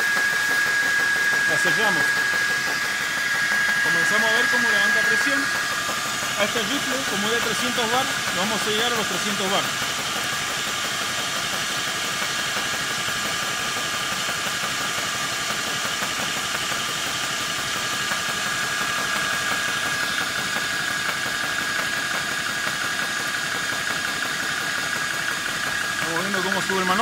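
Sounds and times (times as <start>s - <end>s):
steady high tone: 0.0s - 9.7s
air compressor running: 0.0s - 27.0s
cooling fan running: 0.0s - 27.0s.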